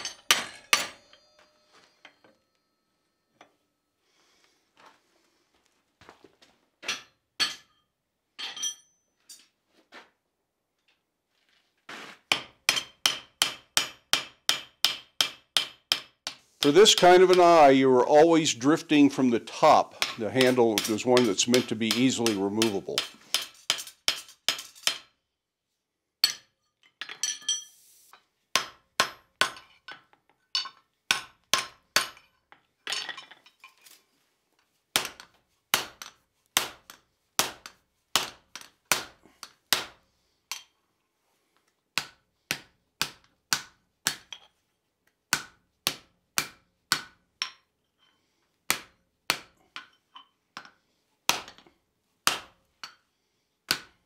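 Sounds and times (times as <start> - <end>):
hammer striking steel: 0.0 - 2.5, 12.3 - 17.8, 19.6 - 25.1.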